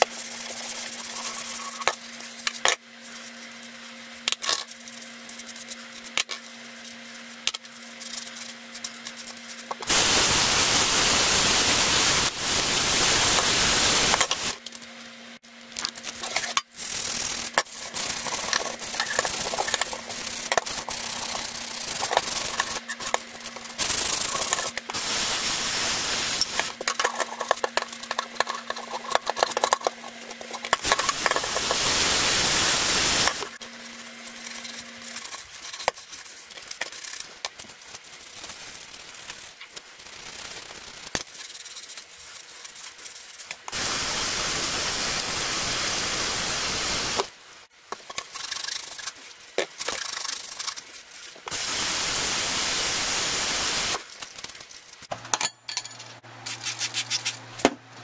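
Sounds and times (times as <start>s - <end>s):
brush scrubbing in steel sink: 0.0s - 2.2s, 16.2s - 37.4s, 48.0s - 51.4s
sponge rubbing: 0.2s - 1.8s, 48.3s - 51.4s.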